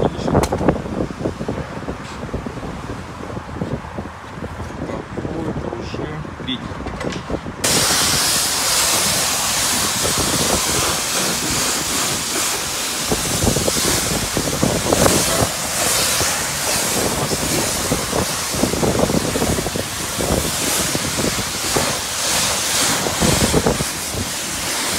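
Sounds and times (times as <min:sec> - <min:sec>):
pressure washer spraying car: 0:07.6 - 0:24.9.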